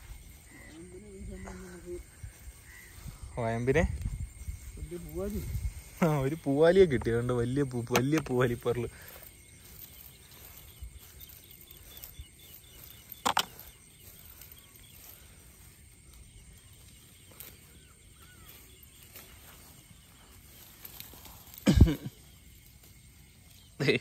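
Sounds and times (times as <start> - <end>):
net rustling on grass: 8.3 - 24.0.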